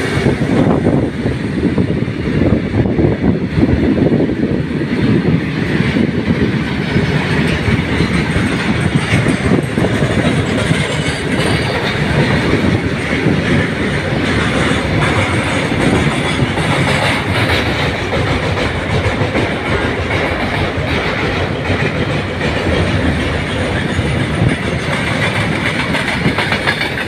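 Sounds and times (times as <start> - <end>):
train wheels rumbling on rails: 0.0 - 27.0.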